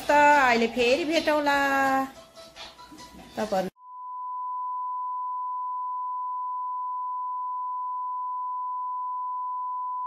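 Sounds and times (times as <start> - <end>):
steady pure test beep: 3.8 - 10.0.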